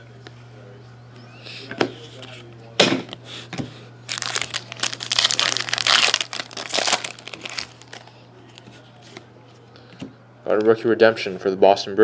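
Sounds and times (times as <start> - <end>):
foil wrapper tearing and crinkling: 4.1 - 8.0.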